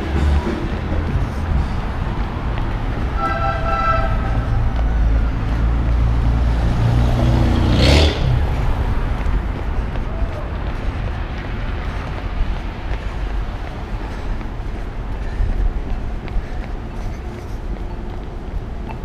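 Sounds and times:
street traffic rumble: 0.0s - 19.0s
vehicle going by: 0.0s - 19.0s
horn tone: 3.1s - 5.1s.

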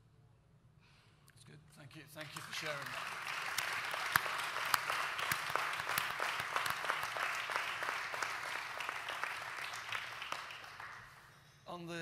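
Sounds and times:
audience applauding: 2.2s - 11.4s.

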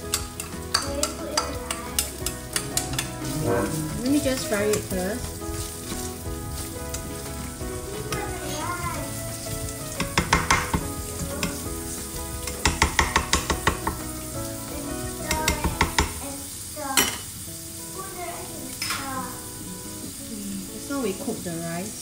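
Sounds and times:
food sizzling in a pan: 0.0s - 22.0s
spatula scraping a pan: 1.7s - 8.7s.

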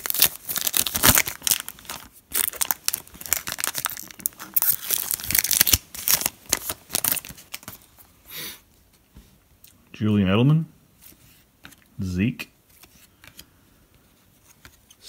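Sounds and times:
foil wrapper tearing and crinkling: 0.0s - 7.7s.

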